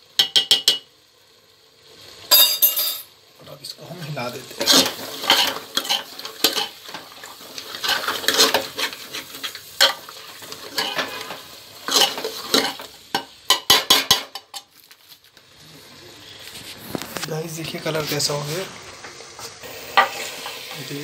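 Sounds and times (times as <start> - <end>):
food sizzling in oil: 0.0 - 21.0
metal knocks against pot: 0.2 - 0.9
metal ladle scraping pot: 4.6 - 12.9.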